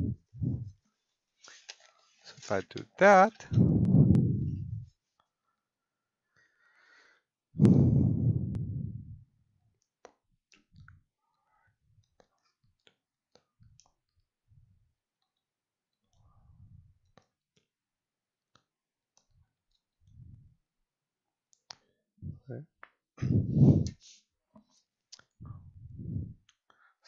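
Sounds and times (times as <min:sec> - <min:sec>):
soft low thuds: 0:00.0 - 0:00.8, 0:03.5 - 0:04.9, 0:07.6 - 0:09.2, 0:22.2 - 0:22.5, 0:23.2 - 0:23.9, 0:25.4 - 0:26.4.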